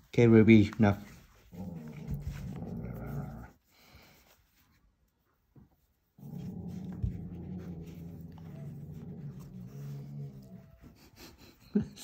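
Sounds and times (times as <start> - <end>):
dog vocalizing in drawn-out stretches: 1.3 - 3.6, 6.2 - 11.4.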